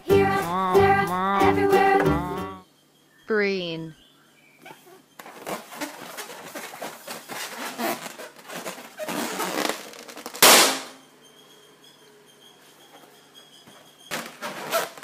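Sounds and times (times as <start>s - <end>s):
rubber balloon squeaking: 4.6s - 15.0s
balloon popping: 9.0s - 11.0s.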